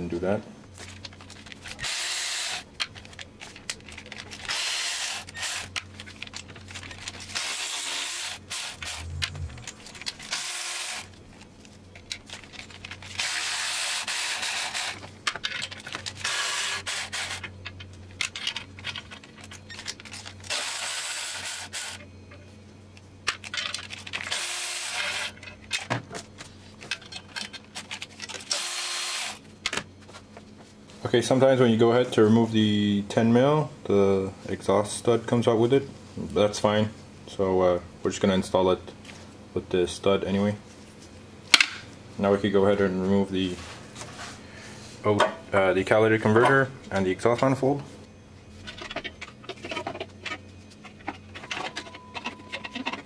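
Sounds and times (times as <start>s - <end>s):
cordless ratchet bursts: 1.8s - 2.6s, 4.4s - 5.8s, 7.3s - 11.1s, 13.2s - 15.0s, 24.3s - 25.3s.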